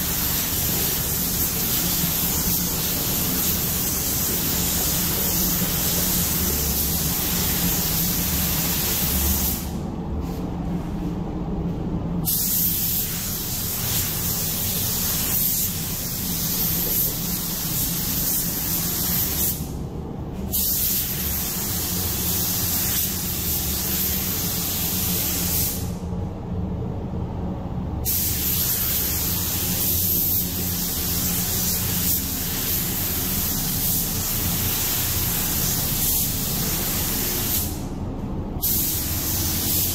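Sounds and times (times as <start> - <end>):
paint spray gun hissing: 0.0 - 9.7, 12.3 - 19.7, 28.1 - 37.9, 38.6 - 39.9
low steady hum: 0.0 - 39.6.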